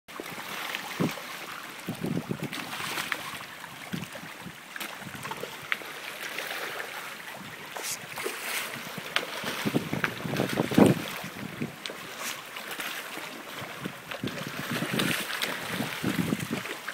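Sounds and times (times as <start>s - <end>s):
water splashing and lapping: 0.1s - 16.9s
wind on microphone: 0.8s - 5.7s, 7.3s - 12.5s, 13.5s - 16.8s
fish splashing at surface: 4.8s - 16.8s.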